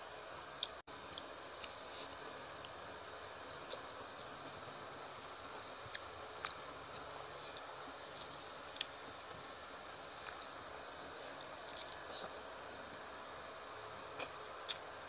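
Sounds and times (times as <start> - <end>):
steady hiss: 0.0 - 15.0
wet chewing clicks and smacks: 11.4 - 12.1.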